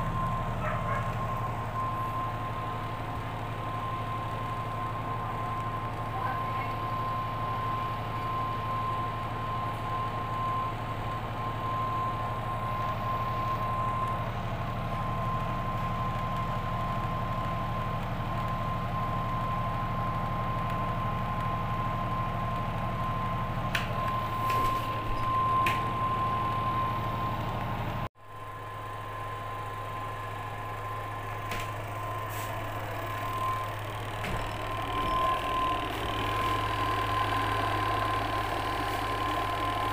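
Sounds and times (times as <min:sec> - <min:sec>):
washing machine motor hum: 0:00.0 - 0:28.0, 0:28.6 - 0:39.9
thin high tone: 0:29.6 - 0:39.9.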